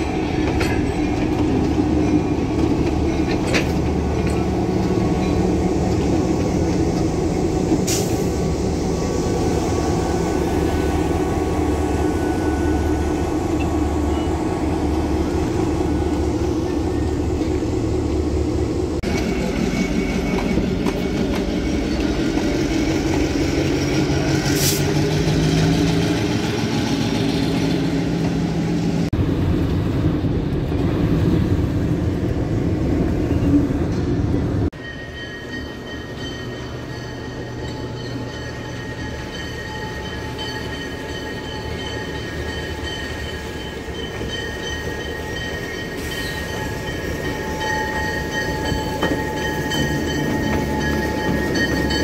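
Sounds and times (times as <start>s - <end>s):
locomotive engine rumbling: 0.0s - 52.0s.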